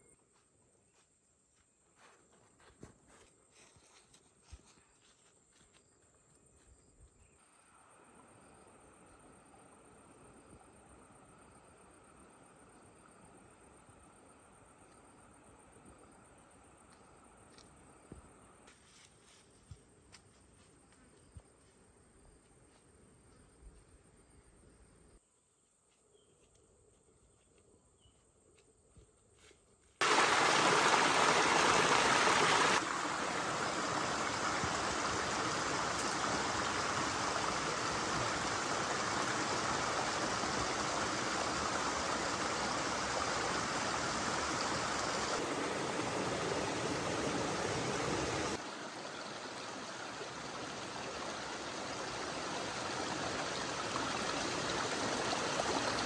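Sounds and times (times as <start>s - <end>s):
stream splashing over rocks: 30.0s - 56.0s.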